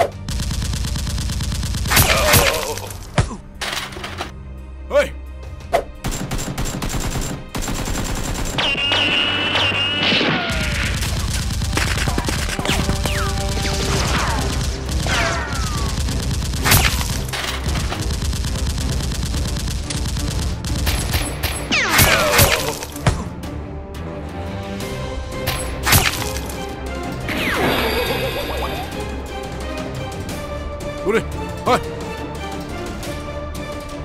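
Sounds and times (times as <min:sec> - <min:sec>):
background music: 0:00.0 - 0:34.0
automatic gunfire: 0:00.3 - 0:02.9, 0:06.0 - 0:21.4
bullet ricochet whines: 0:08.6 - 0:11.0.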